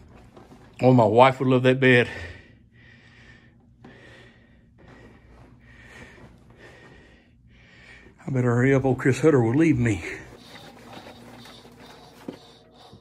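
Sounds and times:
soft breathing: 0:01.8 - 0:08.5, 0:09.9 - 0:13.0.

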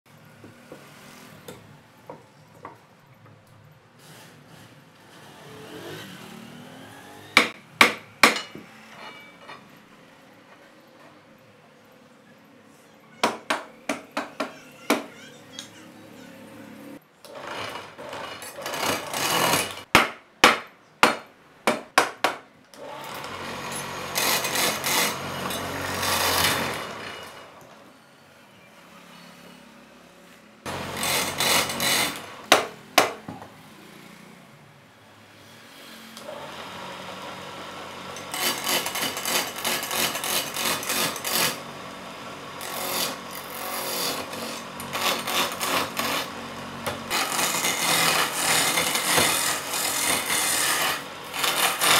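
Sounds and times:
hammer strikes on wood: 0:07.4 - 0:08.7, 0:13.2 - 0:15.1, 0:19.9 - 0:22.5, 0:32.5 - 0:33.5
lathe tool scraping wood: 0:17.3 - 0:19.9, 0:22.9 - 0:27.5, 0:30.7 - 0:32.4, 0:35.6 - 0:41.8, 0:42.5 - 0:51.9.

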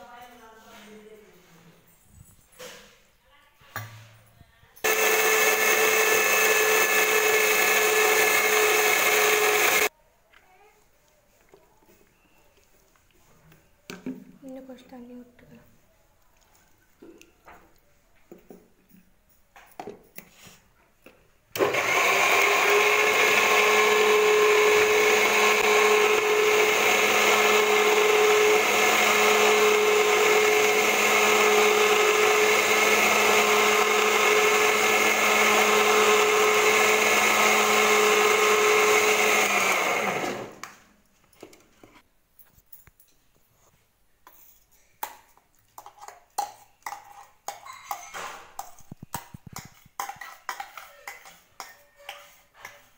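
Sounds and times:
mixer grinder motor whining: 0:04.8 - 0:09.9, 0:21.6 - 0:40.7.

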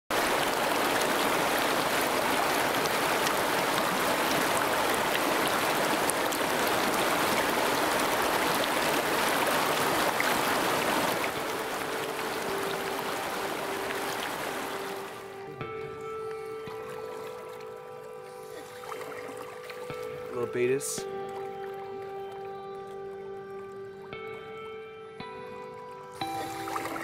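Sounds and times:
river rushing over a riffle: 0:00.1 - 0:15.7
soft held musical tone: 0:11.2 - 0:27.0.

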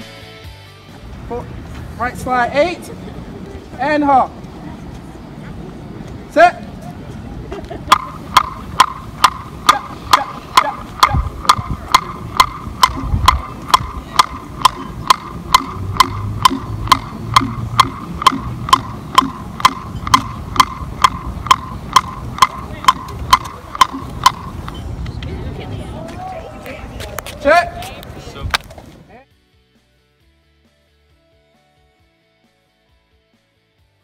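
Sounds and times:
drumstick knocking on a block: 0:07.9 - 0:24.6.

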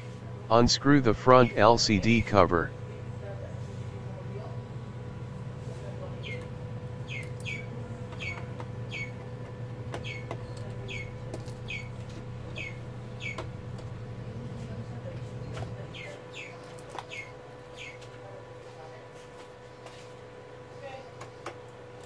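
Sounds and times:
steady low hum: 0:00.5 - 0:03.3.

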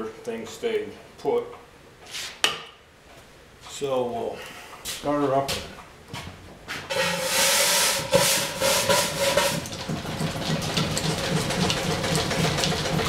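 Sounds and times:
steam engine hissing and puffing: 0:06.9 - 0:09.7
steam engine running rhythmically: 0:06.9 - 0:13.0.

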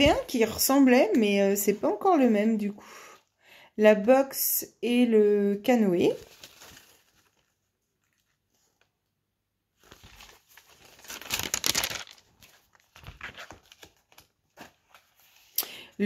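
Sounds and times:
paper sheets rustling: 0:06.1 - 0:08.9, 0:09.8 - 0:15.6.

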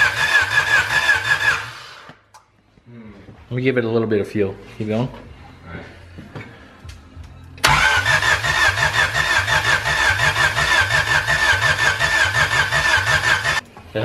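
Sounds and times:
starter motor cranking engine: 0:00.0 - 0:02.1, 0:07.6 - 0:13.6.

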